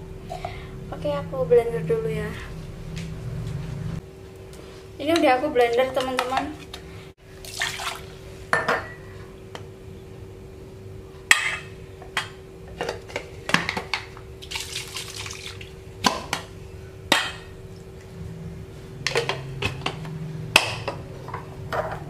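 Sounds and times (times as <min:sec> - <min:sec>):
water sloshing and pouring: 0:07.4 - 0:08.2, 0:14.4 - 0:15.8.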